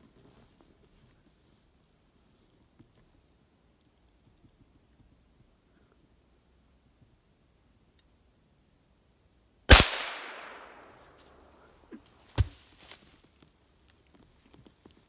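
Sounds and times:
gunshot with echo: 9.7 - 11.0
sharp crack: 9.7 - 11.5.

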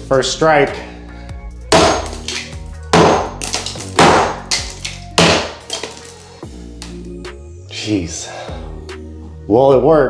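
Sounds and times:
hammer cracking ceramic tile: 1.8 - 6.2.

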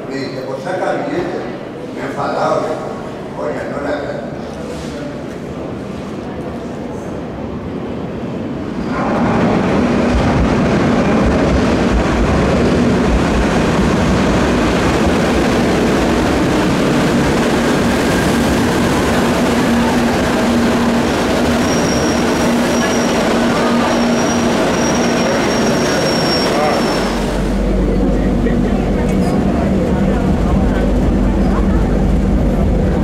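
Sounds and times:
train wheels rumbling on rail: 4.4 - 33.0
wheel and brake squeal: 21.6 - 23.2, 24.0 - 27.2.

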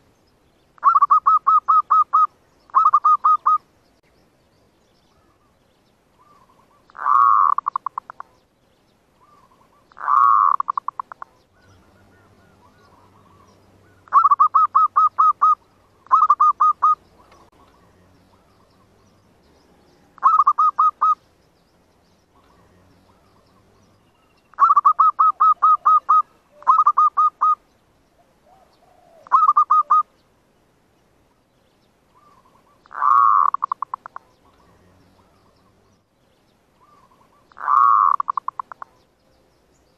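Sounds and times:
dove cooing: 0.8 - 3.6, 6.2 - 8.4, 9.2 - 19.1, 19.7 - 21.2, 22.4 - 27.6, 28.2 - 30.1, 32.2 - 35.8, 36.8 - 39.0.

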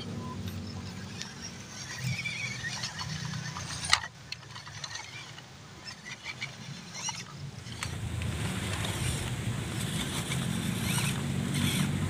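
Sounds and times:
small electric motors whirring: 0.0 - 8.0, 8.7 - 12.0.

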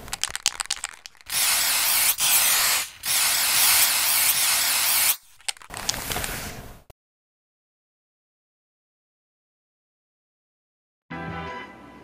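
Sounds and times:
spray paint can hissing: 0.0 - 6.2.

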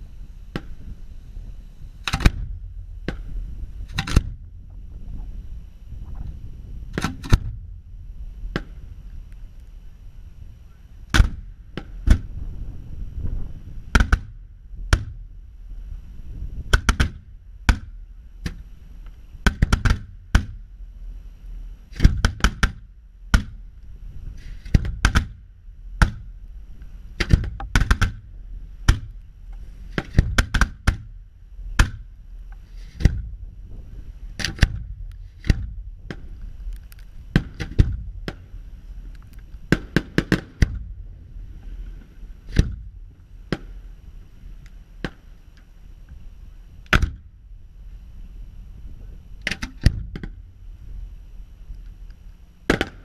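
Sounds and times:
low rumble: 0.0 - 53.0
fireworks bursting with sharp bangs: 39.7 - 40.9, 43.5 - 44.0, 52.7 - 53.0.

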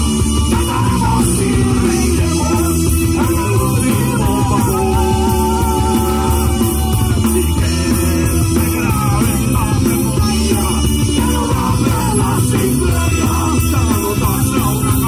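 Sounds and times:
person singing: 0.0 - 15.0
rock band playing: 0.0 - 15.0.

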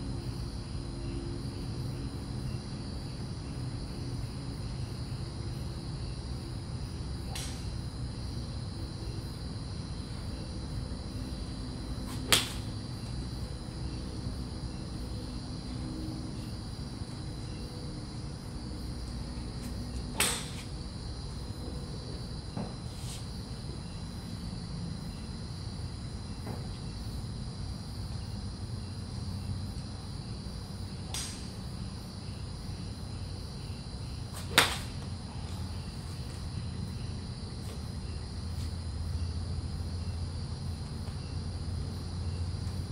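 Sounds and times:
crickets chirring: 0.0 - 42.9
golf club striking balls: 12.2 - 12.7, 20.0 - 20.7, 31.1 - 31.6, 34.4 - 35.1.

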